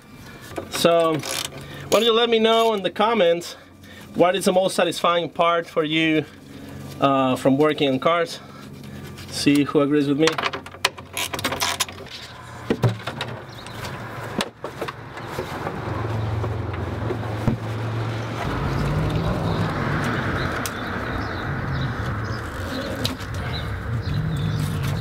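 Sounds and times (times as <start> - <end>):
vehicle engine running: 13.4 - 25.0.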